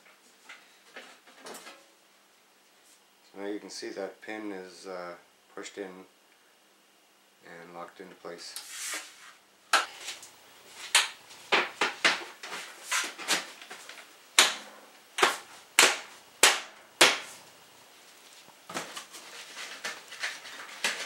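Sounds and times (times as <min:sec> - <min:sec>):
wood fire hissing: 0:08.6 - 0:21.0.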